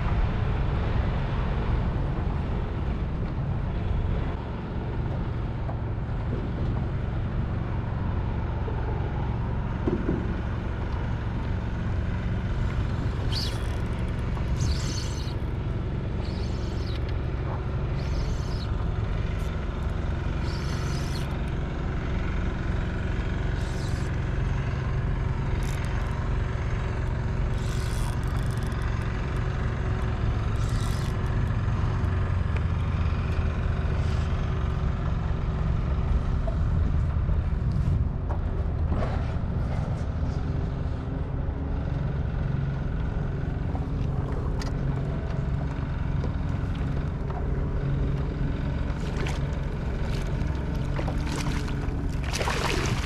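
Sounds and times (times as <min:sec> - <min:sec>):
water rumbling around kayak: 0:00.0 - 0:34.0, 0:43.2 - 0:53.0
water splashing against hull: 0:05.2 - 0:33.1, 0:43.6 - 0:53.0.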